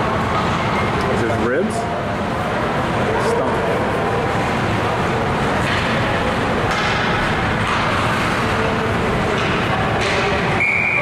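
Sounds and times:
ice rink din: 0:06.6 - 0:11.0.

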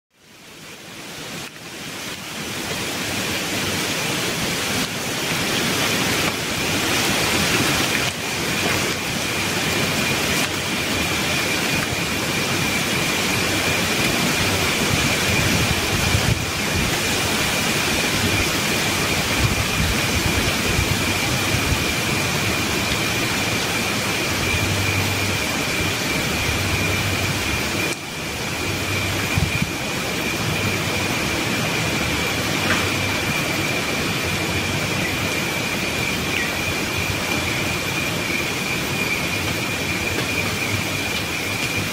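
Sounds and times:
wind rushing through leaves: 0:00.1 - 0:41.9
thin high whine: 0:00.5 - 0:41.9.

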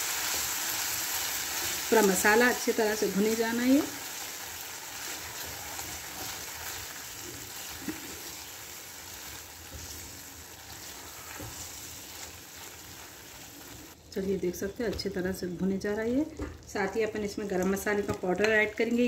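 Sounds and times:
food sizzling in oil: 0:00.0 - 0:14.0
spatula stirring in pan: 0:00.0 - 0:14.0.

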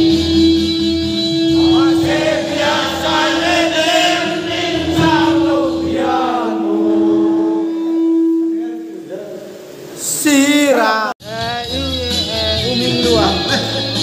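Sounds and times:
steady held tone: 0:00.0 - 0:10.8
group of voices singing: 0:01.5 - 0:08.3.

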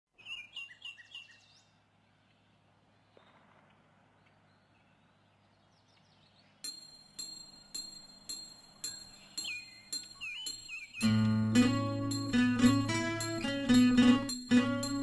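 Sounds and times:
high chirps: 0:06.6 - 0:15.0.

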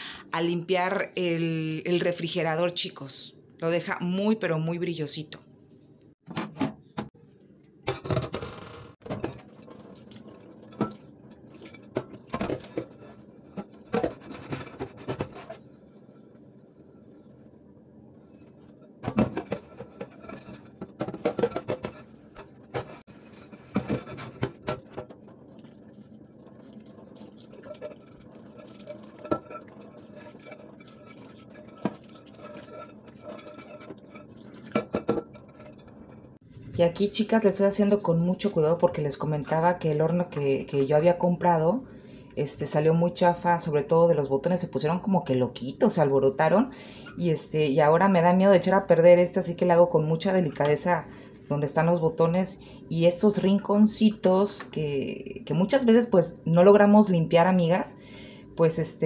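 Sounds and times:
dishes clinking and knocking: 0:18.9 - 0:25.2, 0:27.6 - 0:36.2.

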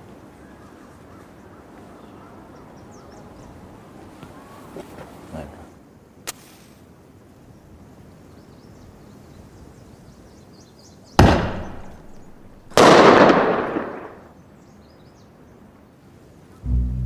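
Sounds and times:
firecracker bangs: 0:11.2 - 0:14.2.

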